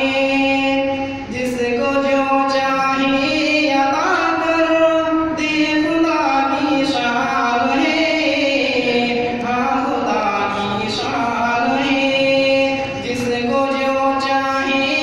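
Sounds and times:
man chanting into a microphone: 0.0 - 15.0.

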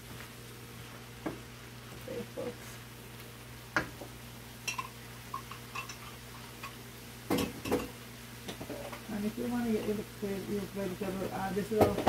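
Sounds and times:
wooden spoon knocking on skillet: 3.7 - 9.0.

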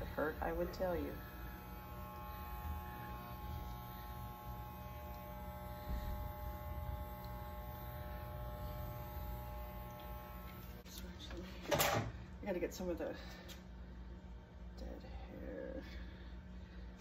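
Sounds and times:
electric hair clippers buzzing: 0.0 - 10.9.

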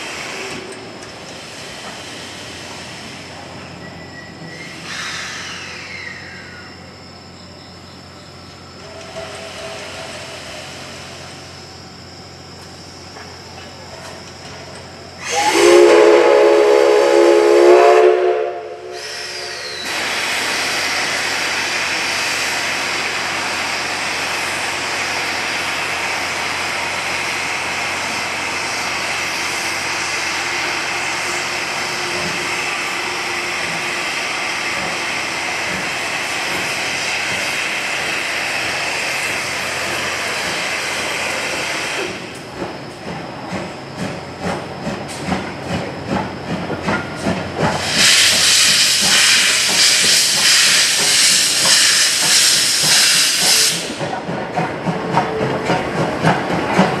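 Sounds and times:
steam hissing: 0.0 - 6.7, 8.8 - 12.0, 14.6 - 57.0
steam locomotive whistle blast: 15.2 - 20.0.

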